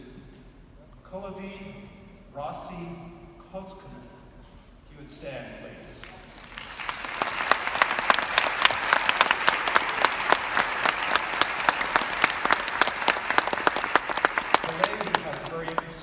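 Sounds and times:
crowd applauding: 6.1 - 16.0.

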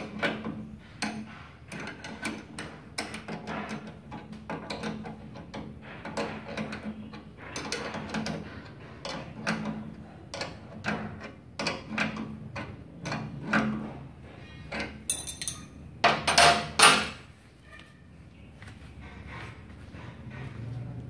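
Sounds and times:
wrench clicking and scraping on metal: 0.1 - 13.6, 14.7 - 16.9.

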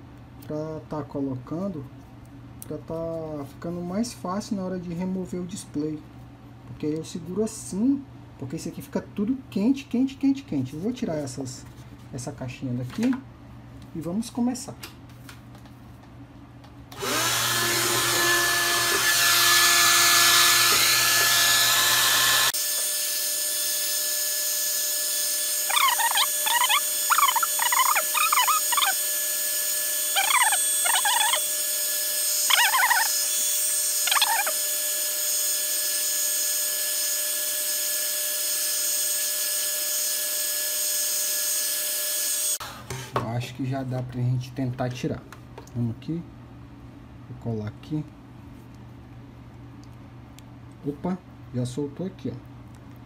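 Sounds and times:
hair dryer running: 16.9 - 35.2.

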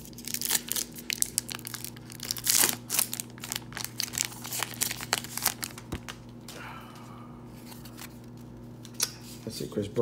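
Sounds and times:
wrapper crinkling and tearing: 0.0 - 6.3.

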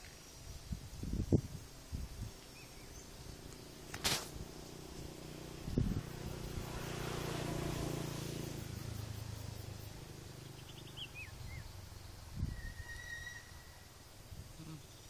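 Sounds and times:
bird chirping: 2.3 - 3.9, 9.0 - 15.0
brief thump: 4.0 - 4.4.

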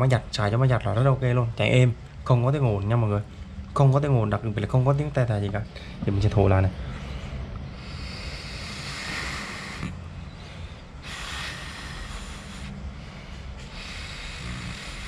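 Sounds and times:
breath blown into pump inlet: 11.0 - 12.9.

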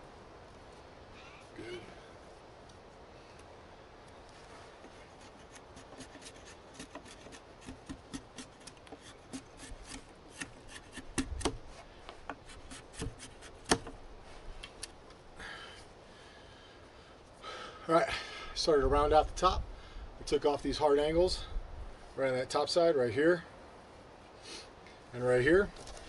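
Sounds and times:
blade carving wood: 5.2 - 11.6.

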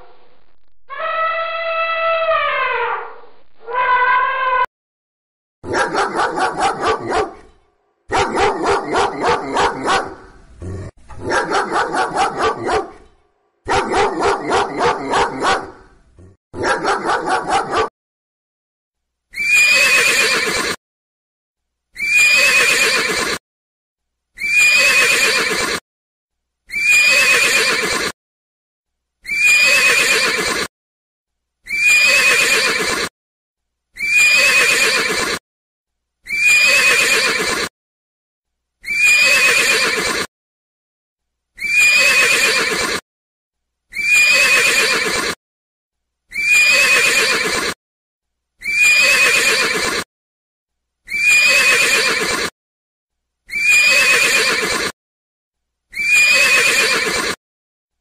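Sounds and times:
dog barking: 5.6 - 7.5, 8.1 - 10.3, 11.2 - 15.9, 16.6 - 17.9
horse whinnying: 19.4 - 20.8, 22.0 - 23.4, 24.4 - 25.8, 26.7 - 28.1, 29.2 - 30.7, 31.7 - 33.1, 34.0 - 35.4, 36.3 - 37.7, 38.8 - 40.3, 41.6 - 43.0, 43.9 - 45.4, 46.3 - 47.8, 48.6 - 50.1, 51.1 - 52.5, 53.5 - 55.0, 56.0 - 57.4.

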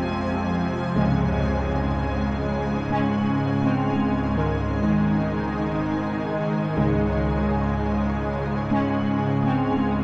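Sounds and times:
slow calm music of held chords: 0.0 - 10.0.

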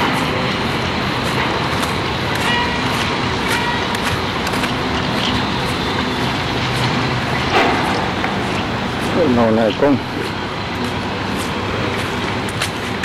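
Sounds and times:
distant city traffic rumble: 0.0 - 13.0.

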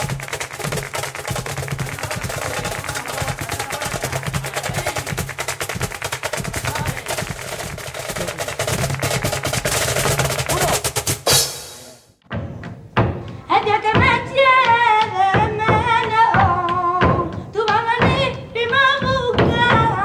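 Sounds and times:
loud foot stamp: 0.0 - 11.0
dance shoes striking a stage floor: 0.0 - 11.4, 12.3 - 20.0.

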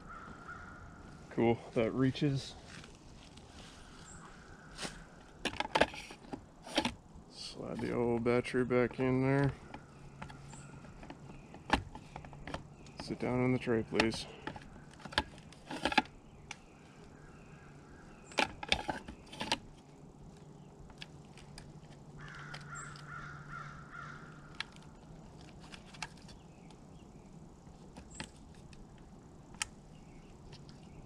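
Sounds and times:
bird calling: 0.0 - 2.7, 3.4 - 6.2, 7.4 - 20.8, 21.4 - 28.4
plastic clicks and knocks: 5.4 - 7.0, 8.9 - 13.2.

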